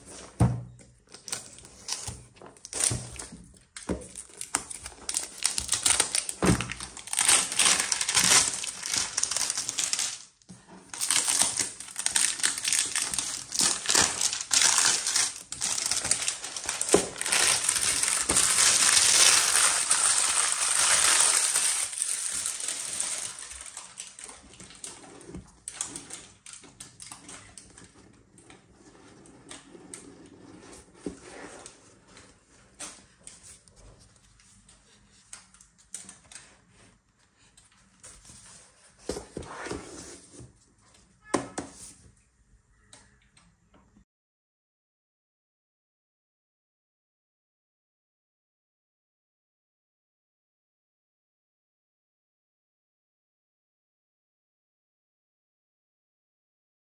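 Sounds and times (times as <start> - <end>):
plastic wrap crinkling: 1.0 - 27.9.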